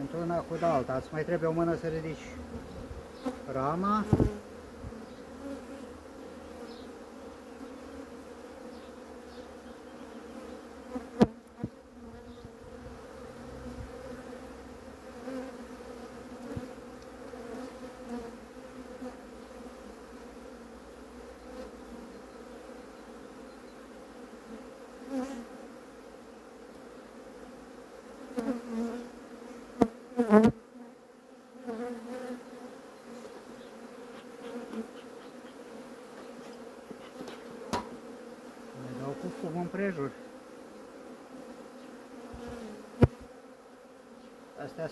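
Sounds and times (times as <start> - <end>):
bees buzzing: 0.0 - 44.9
sharp knock: 37.7 - 38.0.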